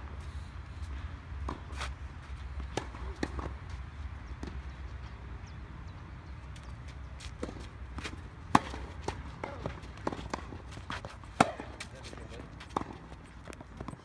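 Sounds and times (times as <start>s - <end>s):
tennis ball bouncing: 1.4s - 1.9s, 2.6s - 5.0s, 6.5s - 14.0s
racket striking tennis ball: 7.4s - 13.2s.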